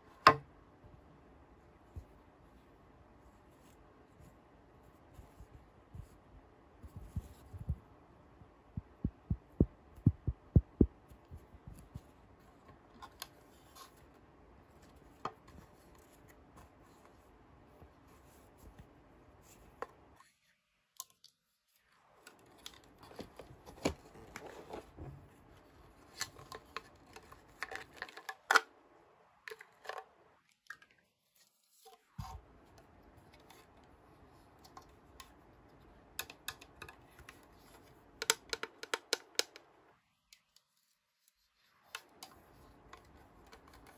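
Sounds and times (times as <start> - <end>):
toy packaging clicks and taps: 36.2 - 37.5, 38.2 - 39.7.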